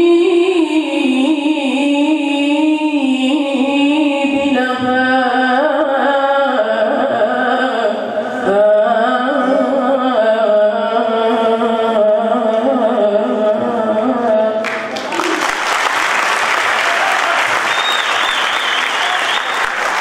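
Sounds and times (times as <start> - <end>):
boy singing into microphone: 0.0 - 14.9.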